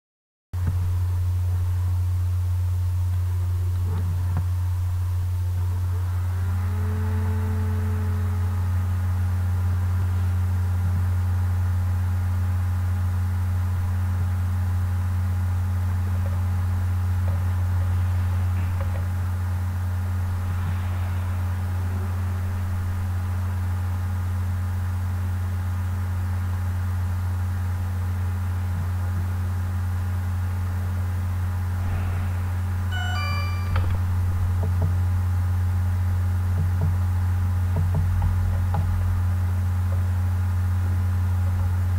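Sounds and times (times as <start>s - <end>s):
low hum: 0.6s - 41.9s
faint high tones: 31.7s - 34.5s.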